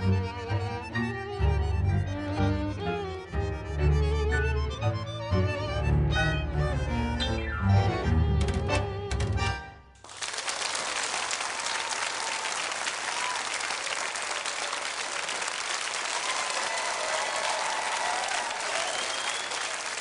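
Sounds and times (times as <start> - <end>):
audience applauding: 10.0 - 20.0
cheers: 10.0 - 20.0.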